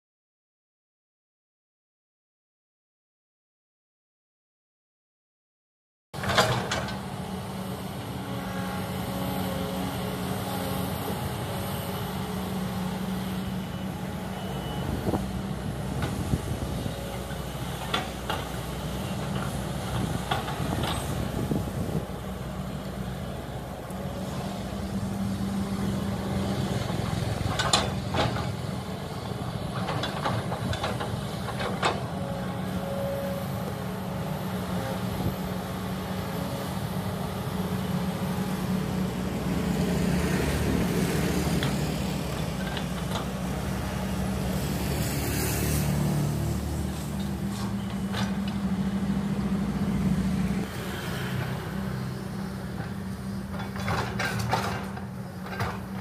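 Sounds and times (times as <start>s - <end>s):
excavator diesel engine running: 6.2s - 56.0s.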